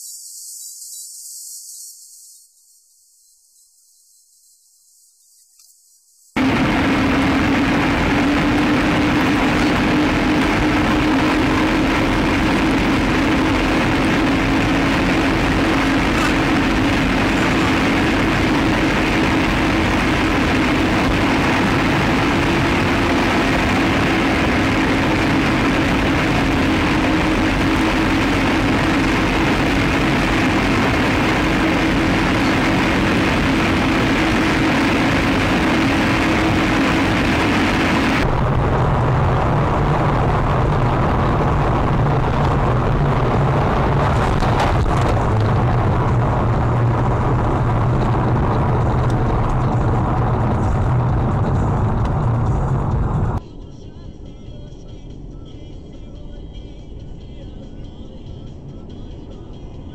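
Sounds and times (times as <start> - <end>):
car engine and tyres droning: 6.4 - 53.4.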